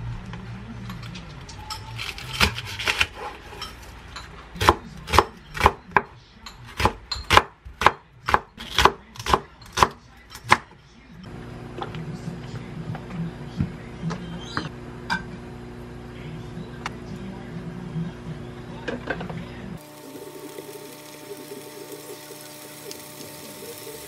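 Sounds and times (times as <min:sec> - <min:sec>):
knife chopping on wooden board: 0:06.8 - 0:10.6.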